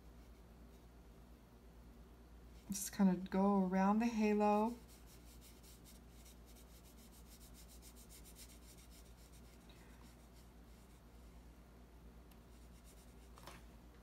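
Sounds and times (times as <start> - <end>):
low steady hum: 0.0 - 14.0
paintbrush scratching on paper: 4.2 - 11.3, 12.4 - 13.4.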